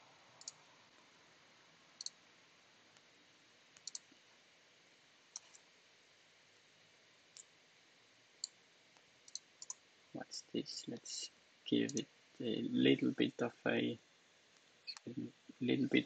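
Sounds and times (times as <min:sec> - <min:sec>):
computer mouse and key clicks: 0:00.4 - 0:00.6, 0:03.8 - 0:04.1, 0:05.3 - 0:05.7, 0:09.3 - 0:09.8.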